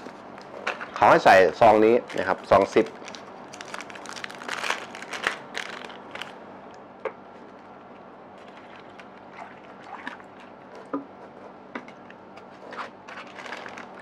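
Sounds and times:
plastic pouch crinkling: 1.8 - 6.4, 12.8 - 14.0.

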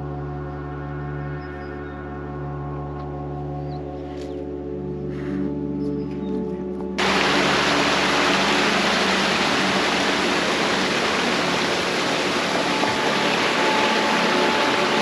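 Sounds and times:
stream water rushing: 7.0 - 15.0
bell-like music: 12.4 - 15.0.

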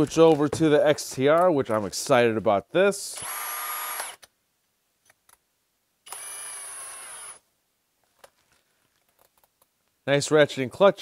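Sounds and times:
cordless drill motor whine: 3.2 - 4.2, 6.1 - 7.4.

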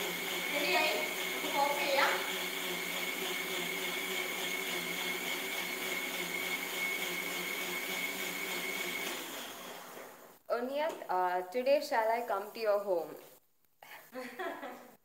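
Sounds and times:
mixer grinder whining: 0.0 - 10.4.

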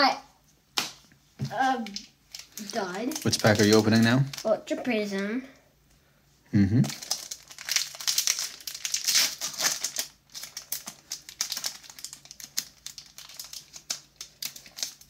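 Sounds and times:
foil wrapper crinkling and tearing: 1.8 - 4.6, 6.8 - 15.0.

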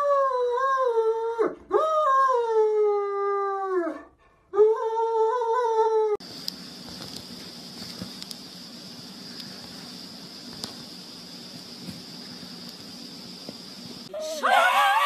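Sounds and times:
steady hiss: 6.2 - 14.5
dog howling: 14.2 - 15.0.

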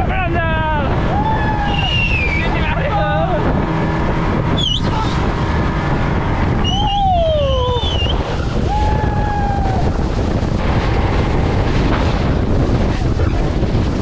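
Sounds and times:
speedboat running fast: 0.0 - 14.0
wind buffeting on microphone: 0.0 - 14.0.

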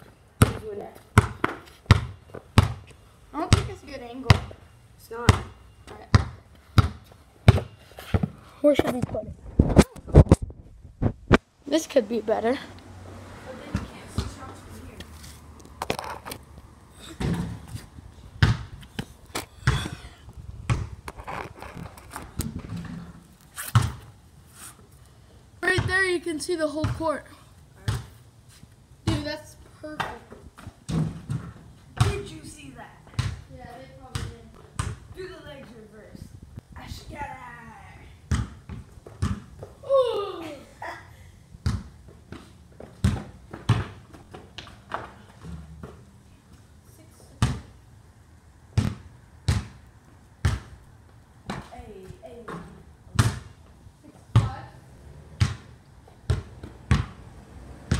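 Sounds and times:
basketball bouncing on concrete: 0.4 - 4.6, 5.2 - 9.2, 13.6 - 14.6, 17.1 - 17.8, 18.4 - 20.0, 20.6 - 21.2, 22.2 - 24.1, 25.6 - 27.1, 27.8 - 28.2, 29.1 - 35.8, 38.2 - 39.8, 41.6 - 46.1, 47.4 - 47.8, 48.8 - 49.8, 50.4 - 50.8, 51.4 - 54.7, 55.4 - 57.2
boy calling out: 39.8 - 40.9.

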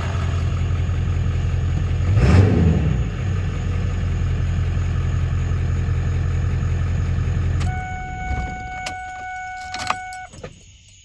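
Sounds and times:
diesel engine idling: 0.0 - 10.3
electronic warning tone: 7.6 - 10.4
keys jingling: 8.3 - 10.4.

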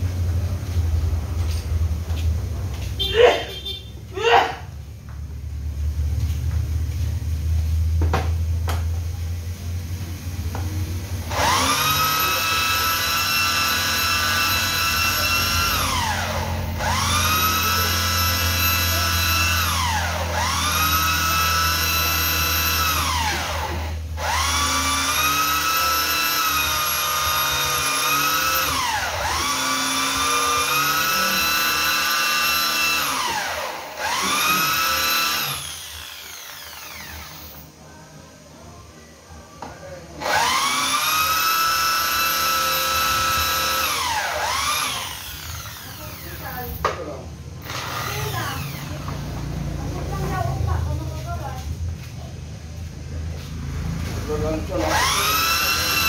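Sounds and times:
electric drill whining: 11.2 - 37.7, 40.2 - 46.8, 47.6 - 49.5, 54.7 - 56.0.

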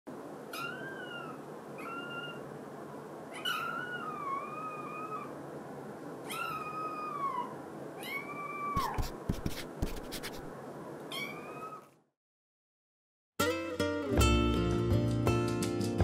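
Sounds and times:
kitten meowing: 0.5 - 2.4, 3.3 - 5.3, 6.3 - 9.0, 11.1 - 11.9.

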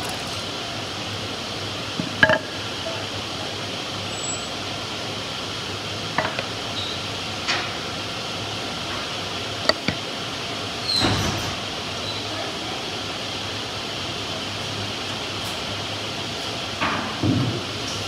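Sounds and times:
steady room hiss: 0.0 - 18.0.

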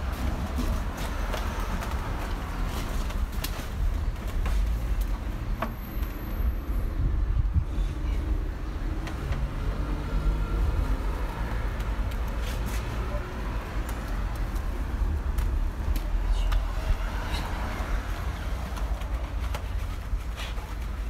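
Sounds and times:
wash mitt rubbing car body: 18.4 - 21.0.

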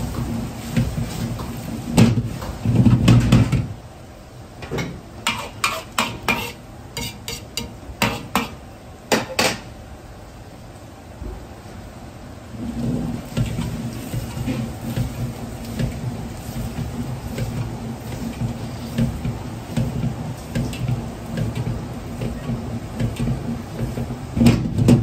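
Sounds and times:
wok knocking on burner: 0.0 - 3.7, 4.8 - 9.7, 13.3 - 25.0
gas burner flame rumble: 0.0 - 25.0
pots and utensils clinking: 4.7 - 8.6.

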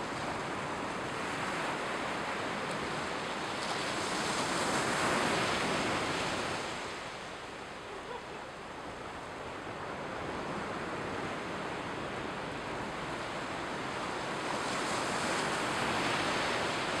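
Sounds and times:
waves washing onto beach: 0.0 - 17.0.

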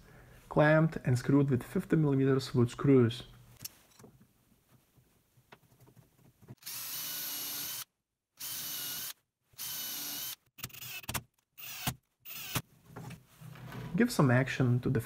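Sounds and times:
cordless drill whining: 6.6 - 12.6.

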